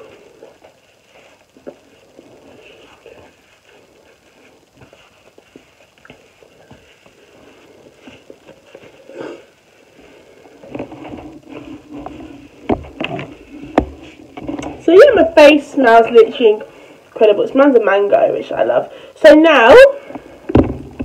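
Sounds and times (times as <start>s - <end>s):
face wipe rustling: 0.0s - 15.3s.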